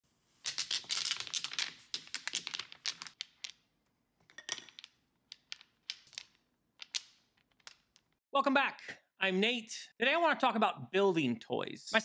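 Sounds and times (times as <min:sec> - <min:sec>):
wooden blocks clacking: 0:00.4 - 0:08.2.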